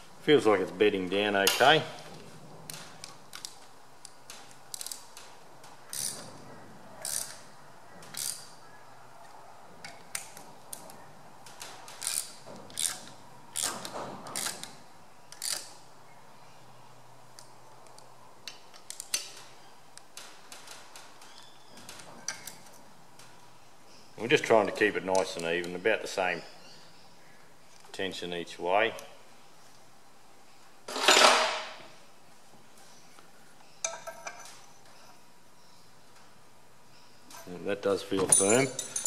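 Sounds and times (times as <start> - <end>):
metal socket clinking on nuts: 38.2 - 39.0.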